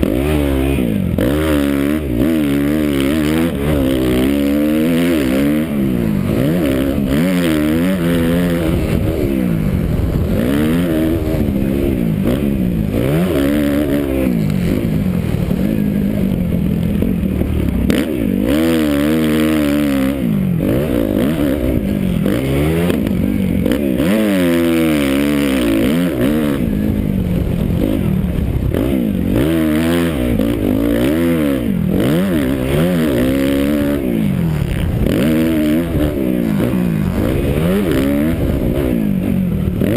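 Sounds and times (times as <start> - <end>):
motocross bike engine revving: 0.0 - 39.9
wind rushing over microphone: 5.7 - 18.0.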